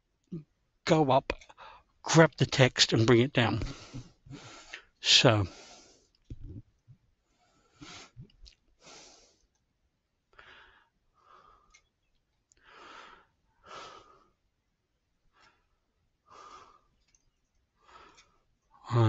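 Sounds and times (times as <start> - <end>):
faint breathing: 1.5 - 2.0, 3.6 - 6.2, 7.2 - 9.6, 10.3 - 11.9, 12.6 - 14.4, 15.3 - 19.0
faint ticks: 11.6 - 12.6, 17.0 - 18.8.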